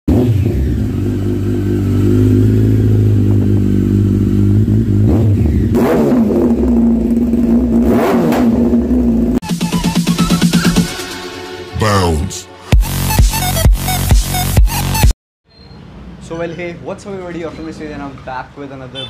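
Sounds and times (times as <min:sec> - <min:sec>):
motorcycle engine idling and revving: 0:00.1 - 0:09.4.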